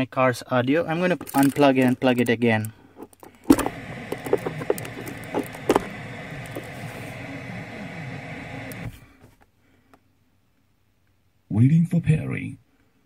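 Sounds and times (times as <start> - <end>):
radio static hiss: 3.4 - 9.1.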